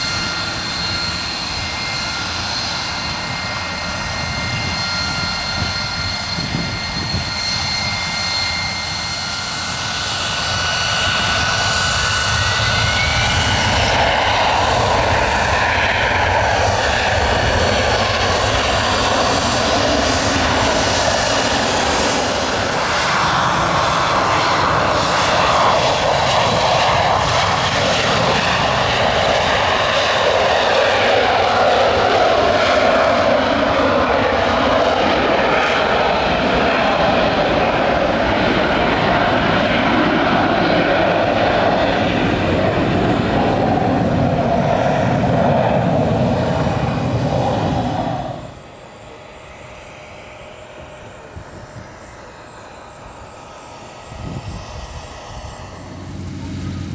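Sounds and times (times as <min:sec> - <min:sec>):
jet engine whining: 0:00.0 - 0:56.9.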